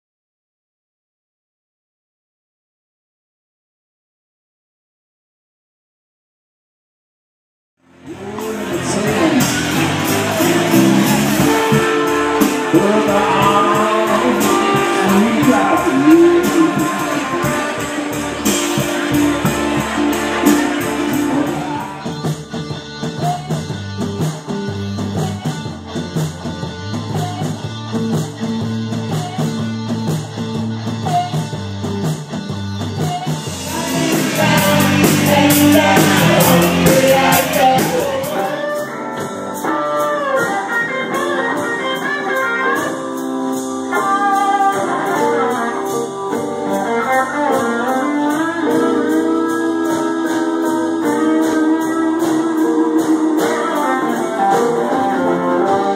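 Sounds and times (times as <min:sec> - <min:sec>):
electric guitar: 0:07.8 - 0:55.9
drums: 0:07.9 - 0:55.9
person singing: 0:08.0 - 0:22.4, 0:33.0 - 0:55.9.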